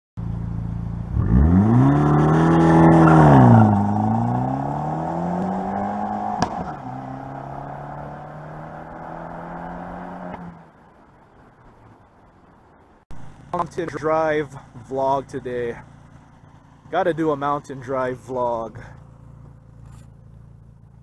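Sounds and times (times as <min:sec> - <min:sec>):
car engine revving and shifting: 0:01.1 - 0:10.6.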